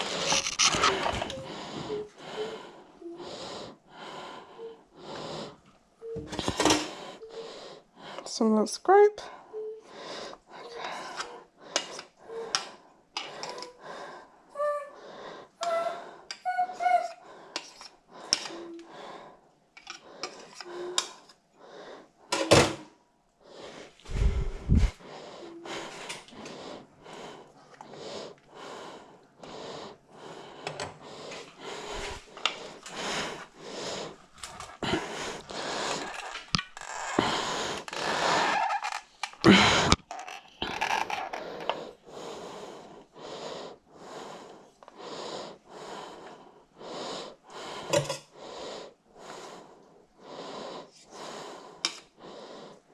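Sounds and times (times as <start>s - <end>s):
heavy breathing: 0.0s - 8.3s, 9.2s - 22.6s, 23.4s - 52.9s.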